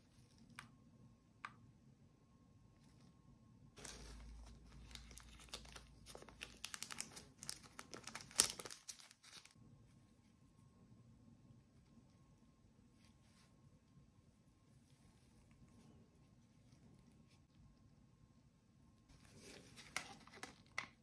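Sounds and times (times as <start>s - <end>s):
plastic packaging crinkling: 3.8s - 9.6s, 19.4s - 21.0s.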